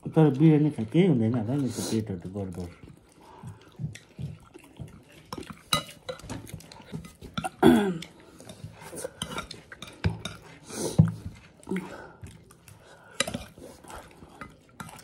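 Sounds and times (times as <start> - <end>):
spoon scraping ceramic plate: 8.4 - 11.2.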